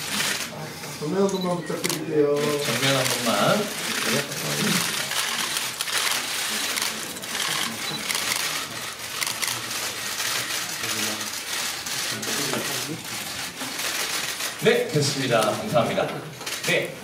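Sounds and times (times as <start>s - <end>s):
camera shutters clicking: 1.2s - 12.9s.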